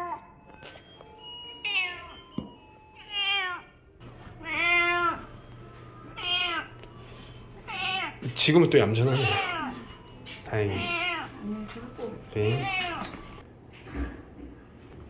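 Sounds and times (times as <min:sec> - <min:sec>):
cat meowing: 0:01.6 - 0:02.1, 0:03.0 - 0:03.7, 0:04.4 - 0:05.4, 0:06.1 - 0:06.8, 0:07.6 - 0:08.4, 0:09.0 - 0:10.0, 0:10.6 - 0:11.5, 0:12.1 - 0:13.4.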